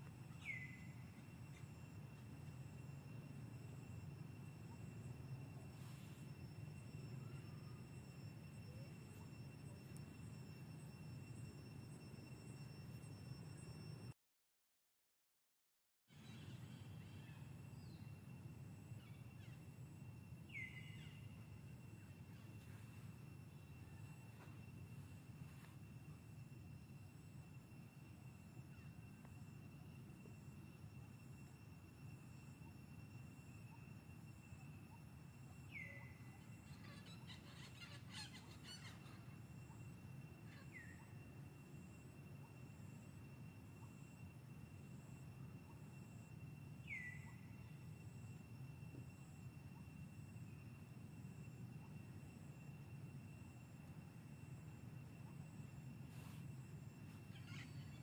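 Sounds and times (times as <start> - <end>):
faint chirps: 0.0 - 14.2, 16.1 - 58.0
high insect drone: 0.0 - 14.2, 16.1 - 58.0
steady thin high tone: 0.0 - 14.2.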